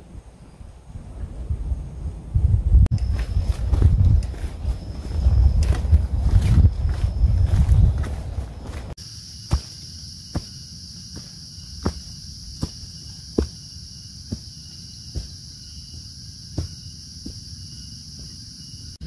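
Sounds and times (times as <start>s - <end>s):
footsteps on dirt trail: 2.9s - 18.4s
high-pitched insect chorus: 2.9s - 19.0s.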